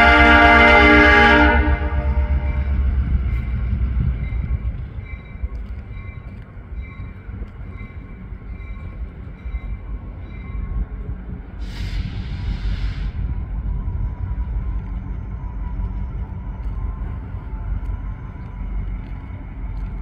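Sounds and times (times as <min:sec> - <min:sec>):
locomotive rumbling: 0:00.0 - 0:20.0
hiss: 0:11.6 - 0:13.2.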